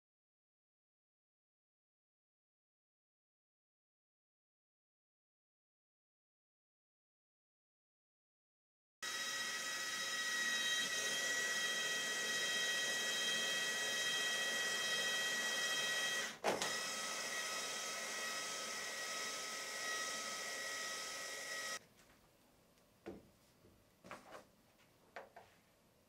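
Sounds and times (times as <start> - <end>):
drill knock: 9.0 - 21.8
power drill motor whine: 9.0 - 21.8.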